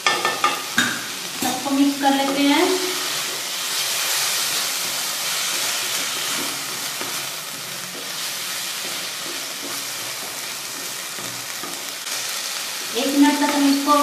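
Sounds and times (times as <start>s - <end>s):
vegetables sizzling in hot oil: 0.0s - 14.0s
wooden spatula stirring: 2.2s - 12.0s.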